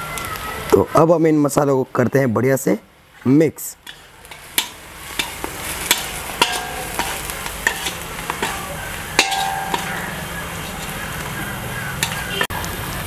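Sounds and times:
steady sizzle: 2.9s - 13.0s
spoon clinking against pan: 3.8s - 12.5s
spoon stirring in metal pan: 3.8s - 12.5s.

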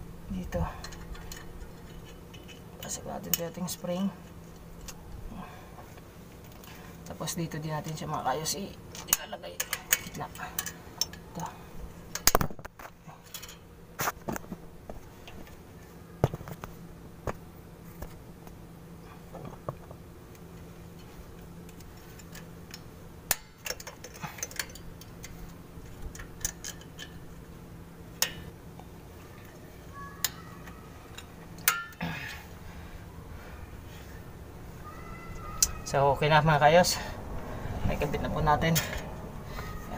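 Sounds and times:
steady low hum: 0.0s - 39.9s
metallic clicks of springs and pliers: 8.9s - 12.5s, 13.2s - 13.6s, 21.7s - 27.4s, 28.2s - 28.5s, 29.4s - 32.4s, 35.3s - 35.8s.

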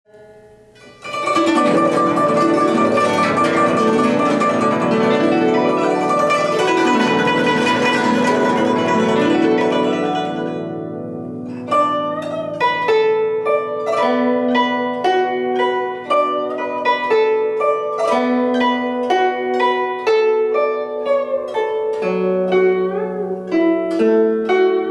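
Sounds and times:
guzheng notes ringing: 0.1s - 24.9s.

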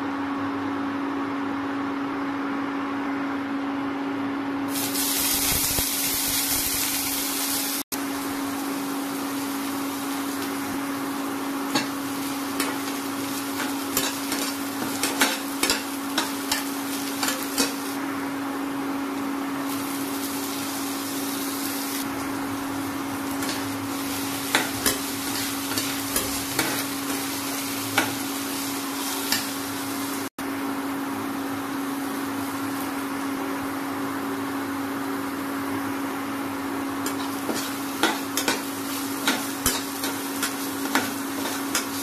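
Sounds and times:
cooktop humming: 0.0s - 42.0s
onions sizzling in oil: 4.7s - 30.9s, 31.7s - 42.0s.

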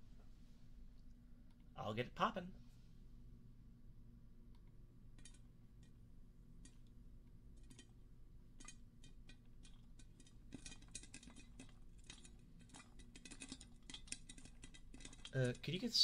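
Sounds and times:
popcorn popping: 6.6s - 15.9s.

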